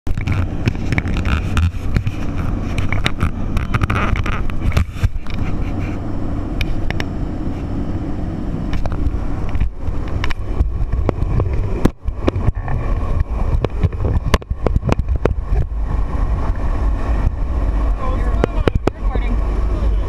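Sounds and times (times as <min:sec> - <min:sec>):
gear knocking and rustling: 0:00.0 - 0:06.0, 0:08.7 - 0:16.6
plane engine and propeller drone: 0:00.1 - 0:20.0.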